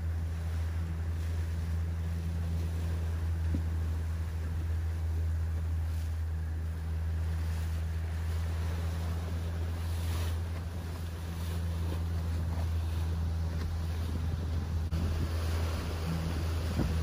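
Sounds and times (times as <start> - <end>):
boat engine droning: 0.0 - 17.0
water wash: 0.0 - 17.0
wind on microphone: 7.7 - 17.0.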